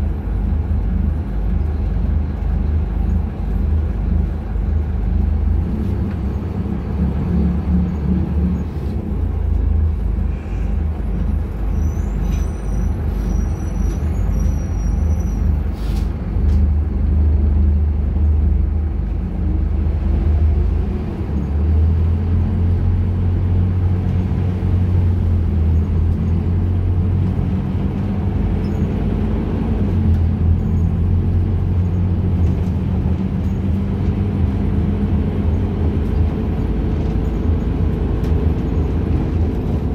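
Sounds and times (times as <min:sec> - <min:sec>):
bus engine humming: 0:00.0 - 0:39.9.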